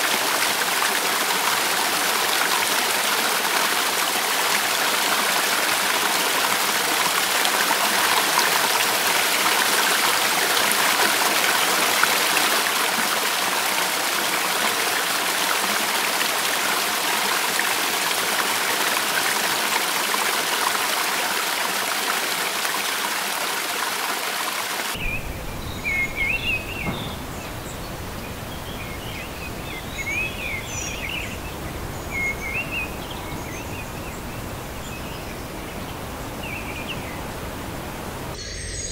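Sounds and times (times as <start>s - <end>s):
waterfall rushing: 0.0s - 38.8s
birds chirping: 24.9s - 38.9s
low rumble: 25.0s - 29.7s.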